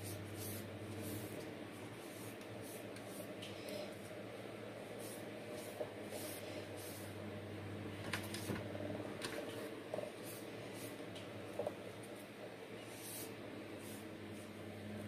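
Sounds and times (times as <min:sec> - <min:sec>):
steady low hum: 0:00.0 - 0:15.0
rubbing leaves with cotton pad: 0:05.0 - 0:07.1.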